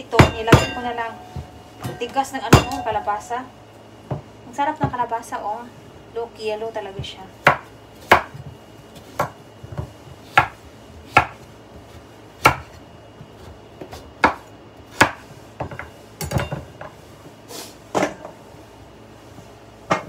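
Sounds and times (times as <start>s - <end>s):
knife chopping on cutting board: 7.4s - 12.8s, 13.4s - 16.6s.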